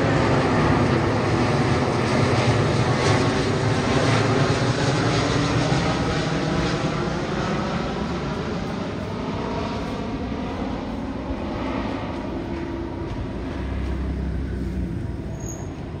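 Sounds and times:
jet engine roar: 0.0 - 16.0
deep rumble: 8.4 - 16.0.

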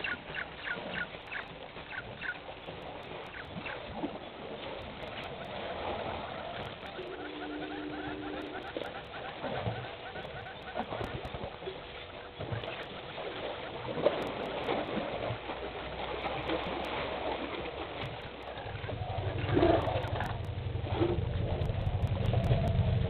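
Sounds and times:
vehicle engine humming: 6.7 - 9.0, 18.3 - 23.0
elephants splashing water: 10.6 - 23.0.

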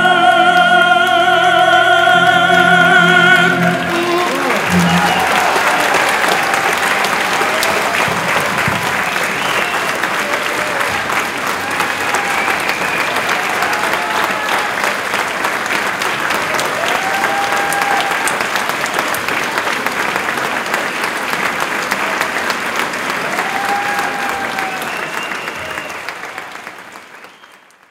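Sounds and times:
audience applauding: 2.2 - 27.9.

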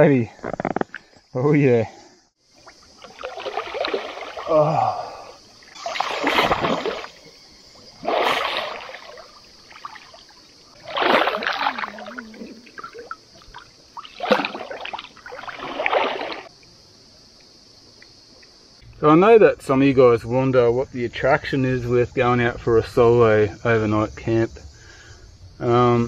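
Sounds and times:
high insect drone: 0.0 - 26.0
water splashing from swimming: 2.6 - 16.5.

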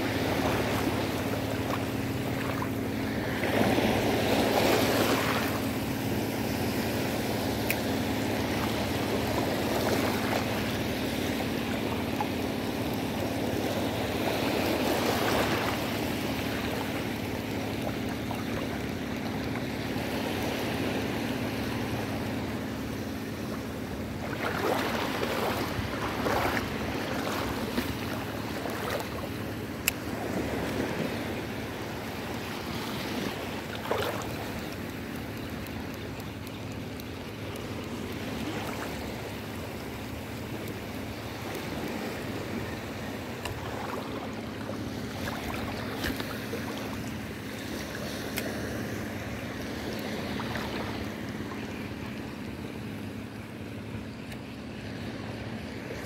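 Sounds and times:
sea water lapping and splashing: 0.0 - 56.0
steady low hum: 0.0 - 56.0.

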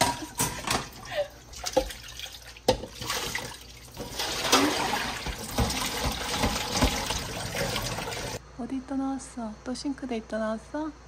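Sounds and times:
tap water running into sink: 1.6 - 8.4.

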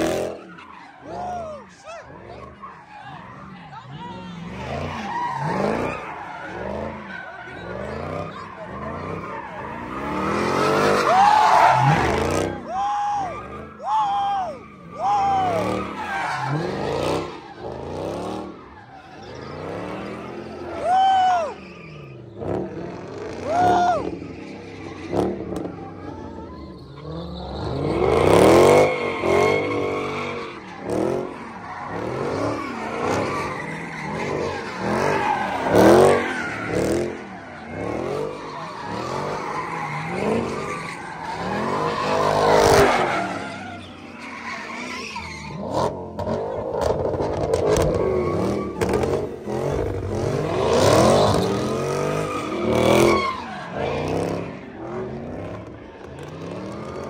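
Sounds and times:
car engine revving: 0.0 - 12.7, 14.9 - 20.9, 21.9 - 57.0
tyres squealing on asphalt: 0.0 - 57.0.

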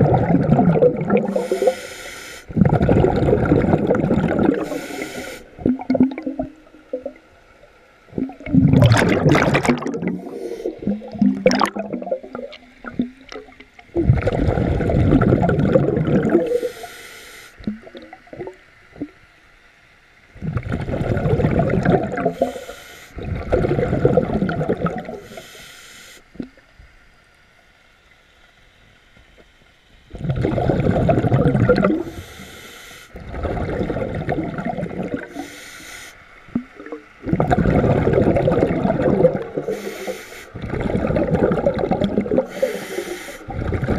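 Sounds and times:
bubbling exhalations: 0.0 - 1.8, 2.5 - 7.2, 8.1 - 16.7, 20.4 - 22.5, 23.2 - 25.2, 30.1 - 32.1, 33.2 - 35.5, 36.5 - 43.9
diver breathing through regulator: 1.2 - 2.7, 4.4 - 5.7, 10.0 - 11.2, 16.4 - 17.6, 22.3 - 23.3, 25.2 - 26.3, 31.9 - 33.3, 35.2 - 36.3, 39.6 - 41.3, 42.3 - 43.9.

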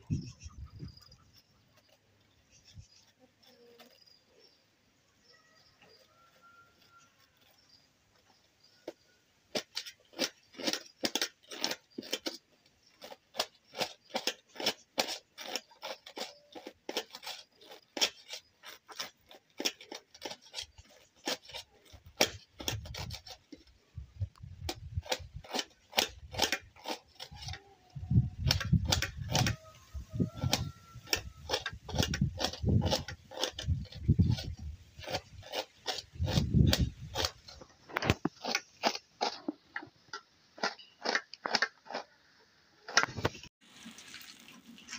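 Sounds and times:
knife cutting cabbage: 8.9 - 39.6.

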